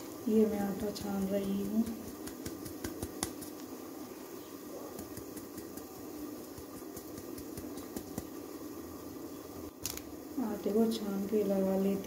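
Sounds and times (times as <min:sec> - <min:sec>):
flour being sifted: 0:00.0 - 0:03.6
steady low hum: 0:00.0 - 0:12.0
hand tapping sieve rim: 0:00.8 - 0:03.5, 0:04.9 - 0:08.4.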